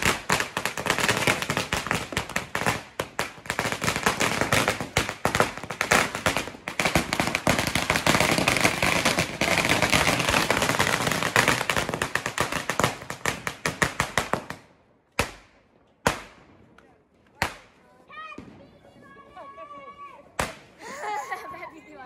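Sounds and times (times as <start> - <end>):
firecrackers banging rapidly: 0.0 - 16.4, 20.4 - 21.0.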